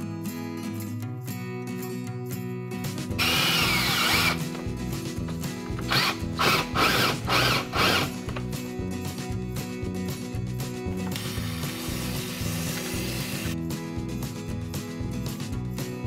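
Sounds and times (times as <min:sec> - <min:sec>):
acoustic guitar music: 0:00.0 - 0:16.0
cordless drill whining: 0:03.2 - 0:04.6, 0:05.8 - 0:08.2.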